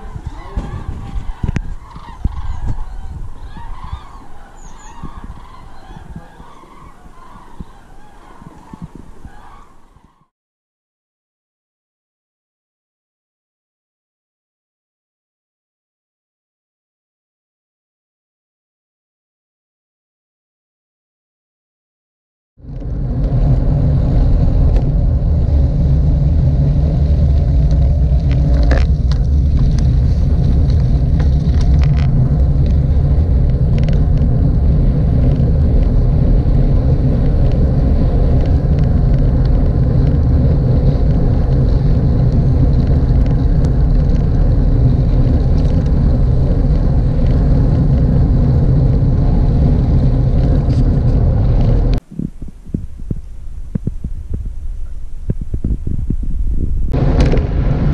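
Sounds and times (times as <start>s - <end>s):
wind rumbling over microphone: 0.0s - 10.3s, 22.6s - 57.9s.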